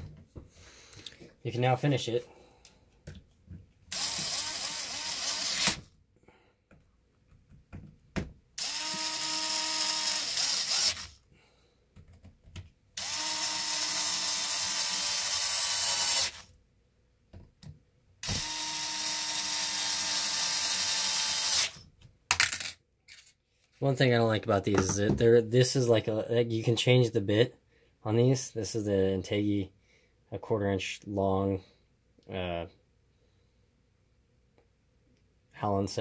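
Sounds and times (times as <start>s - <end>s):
electric screwdriver driving screws: 3.9s - 5.9s, 8.6s - 11.2s, 13.0s - 16.5s, 18.2s - 21.8s.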